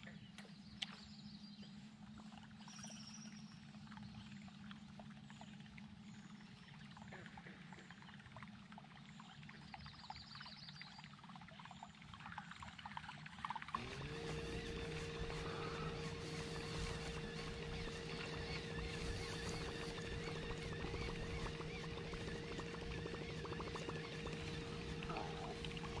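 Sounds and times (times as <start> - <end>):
water lapping at boat hull: 0.0 - 26.0
steady low hum: 13.4 - 26.0.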